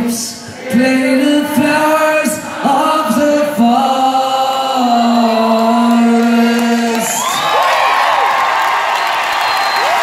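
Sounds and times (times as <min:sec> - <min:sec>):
audience cheering and whistling: 0:06.9 - 0:10.0.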